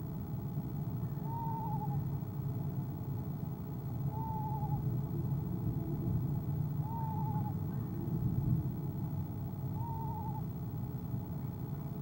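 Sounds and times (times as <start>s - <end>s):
steady low hum: 0.0s - 12.0s
owl quavering calls: 1.1s - 2.0s, 4.1s - 4.9s, 6.8s - 8.0s, 9.8s - 10.5s.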